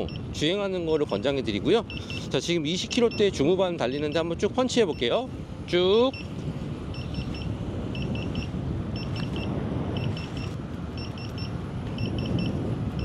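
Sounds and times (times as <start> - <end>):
alarm triple beeps: 0.0 - 0.3, 1.8 - 4.3, 4.9 - 5.2, 6.1 - 6.3, 6.9 - 13.0
wind and tyre noise: 0.0 - 13.0.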